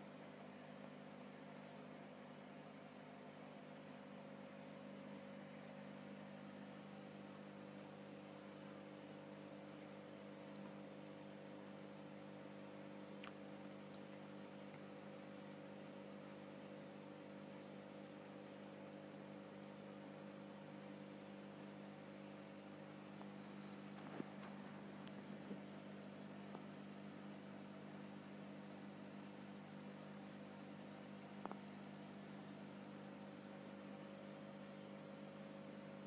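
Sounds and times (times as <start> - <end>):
aquarium pump hum: 0.0 - 36.0
faint click: 13.2 - 14.1.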